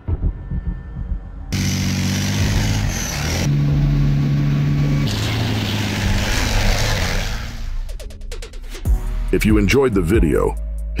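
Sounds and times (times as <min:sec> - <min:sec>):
tank engine running hard: 0:01.6 - 0:07.8.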